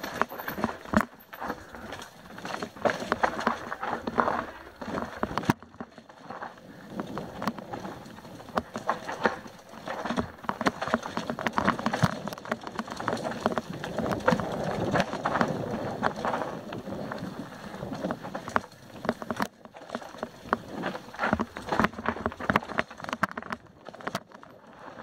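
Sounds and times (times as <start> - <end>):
bike rattling over rocks: 0.0 - 25.0
tyres crunching over dirt and stones: 0.0 - 25.0.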